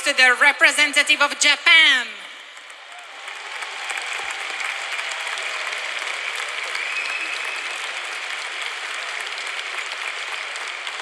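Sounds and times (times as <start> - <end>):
crowd applauding: 2.5 - 11.0.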